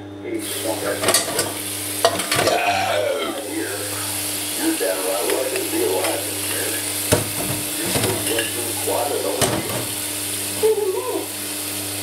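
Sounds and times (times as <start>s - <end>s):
steady hum and hiss: 0.0s - 12.0s.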